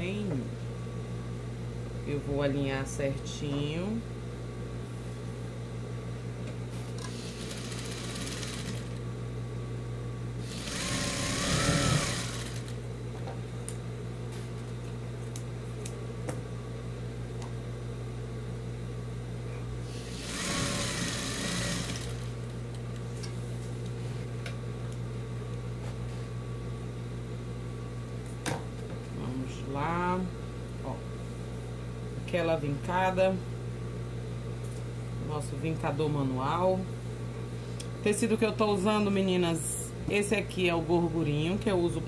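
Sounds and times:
steady low hum: 0.0s - 42.0s
sewing machine stitching: 7.1s - 9.0s, 10.5s - 12.7s, 20.1s - 22.3s.

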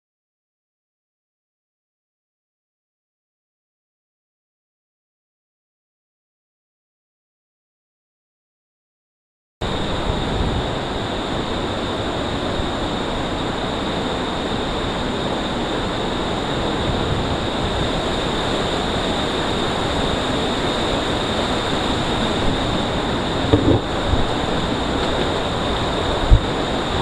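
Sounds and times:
waterfall rushing in gorge: 9.7s - 27.0s.

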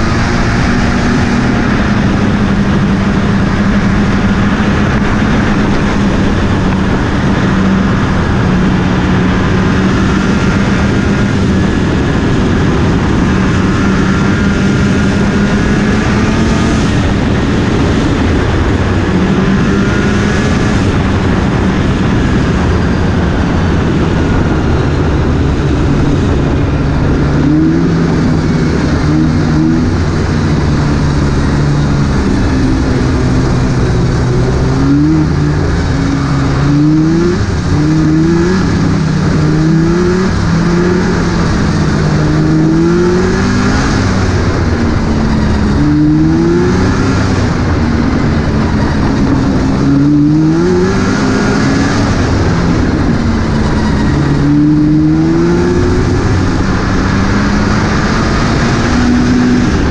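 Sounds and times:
snowmobile engine revving: 0.0s - 59.9s
wind on microphone: 0.0s - 59.9s.

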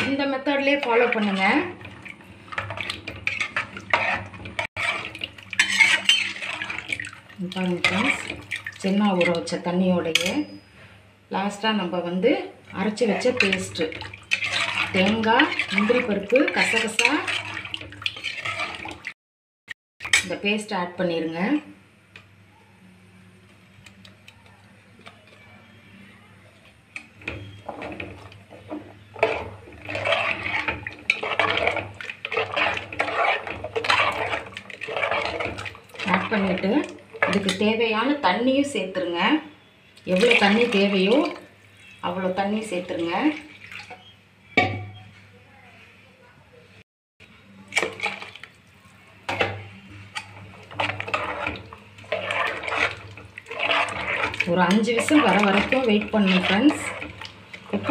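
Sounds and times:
metal spoon scraping paste: 3.3s - 6.8s, 29.1s - 35.5s, 50.7s - 57.9s.

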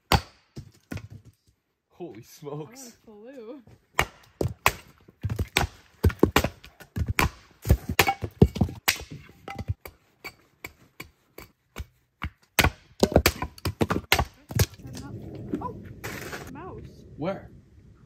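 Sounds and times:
axe chopping firewood: 0.0s - 1.2s, 3.9s - 15.0s.

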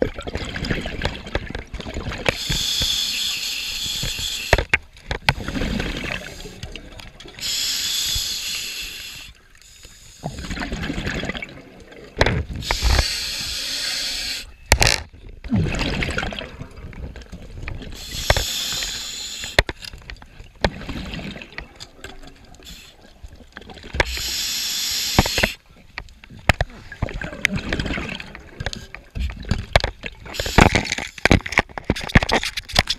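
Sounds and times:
bubbling exhales: 5.3s - 8.5s, 15.5s - 16.9s
diver breathing through regulator: 7.4s - 10.3s, 12.6s - 14.5s, 18.0s - 19.6s, 24.0s - 25.6s.

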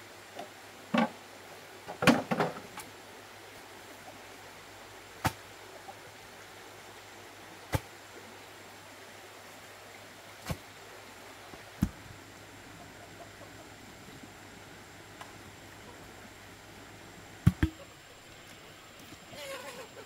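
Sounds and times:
pole thudding into ground: 17.4s - 17.8s.

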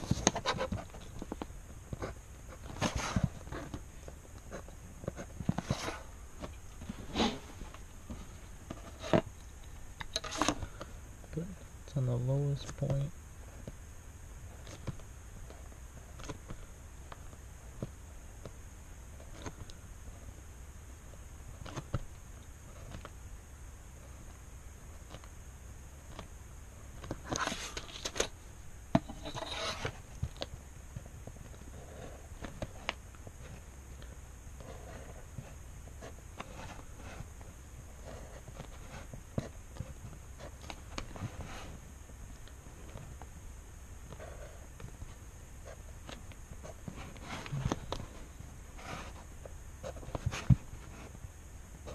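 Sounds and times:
steady low hum: 0.0s - 51.9s
pen scratching on paper: 29.1s - 30.0s, 31.7s - 32.2s, 34.6s - 35.2s, 37.9s - 40.6s, 44.1s - 44.7s.

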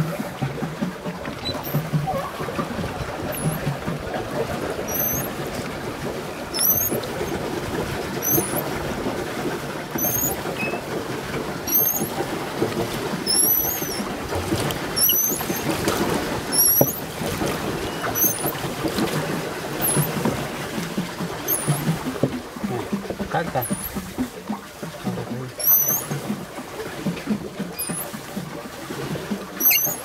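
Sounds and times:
paddle wheel churning water: 0.0s - 30.0s
short high squeak: 1.4s - 2.4s, 3.3s - 3.6s, 4.9s - 5.4s, 6.5s - 7.4s, 8.2s - 8.7s, 9.9s - 10.8s, 11.7s - 12.1s, 13.3s - 14.1s, 15.0s - 15.7s, 16.5s - 17.0s, 17.9s - 18.6s, 19.8s - 20.2s, 21.4s - 21.9s, 25.6s - 26.2s, 27.8s - 28.1s, 29.6s - 30.0s.

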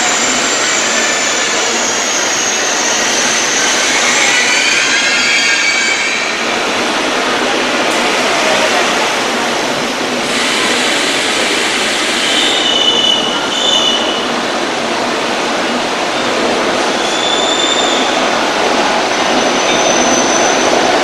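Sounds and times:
high-pitched wheel squeals: 0.0s - 6.6s, 17.0s - 18.3s
train wheels rumbling on rail: 0.0s - 21.0s.

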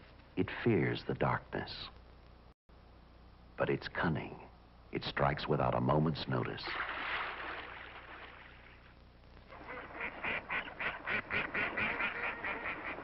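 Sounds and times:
waterfowl quacking: 9.5s - 13.0s.

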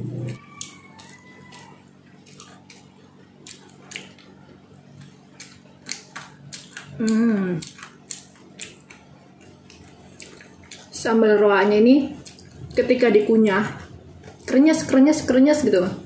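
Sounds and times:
person chewing food: 0.2s - 11.0s, 12.2s - 12.8s
person humming: 7.0s - 7.7s.

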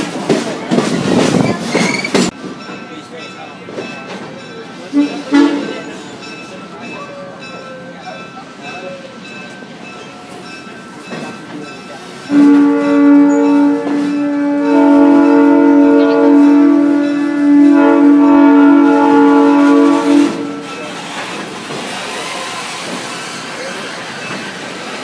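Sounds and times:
train car rolling noise: 0.0s - 25.0s
train horn chord: 4.9s - 5.9s, 12.3s - 20.7s.

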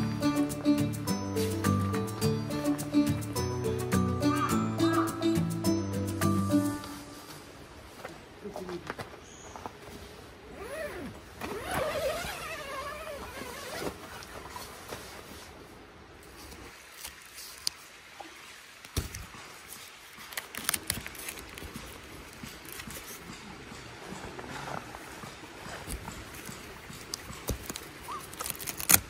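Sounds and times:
tent zipper pulled open: 10.4s - 14.4s.

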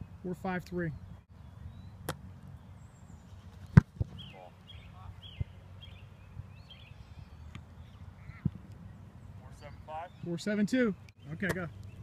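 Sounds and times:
birds chirping: 0.0s - 12.0s
foot kicking football thump: 3.7s - 4.2s.

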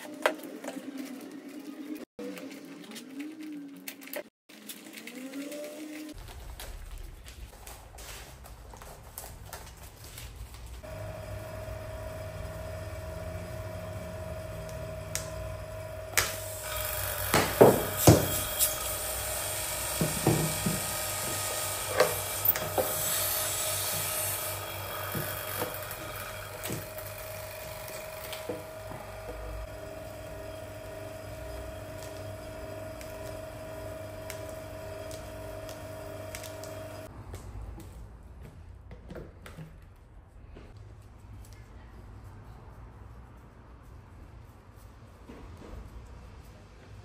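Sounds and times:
vacuum pump running: 10.8s - 37.1s.

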